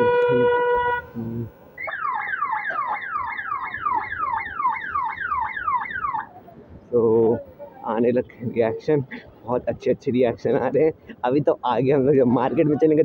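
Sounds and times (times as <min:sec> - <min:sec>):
electronic siren yelp: 0:01.8 - 0:06.3.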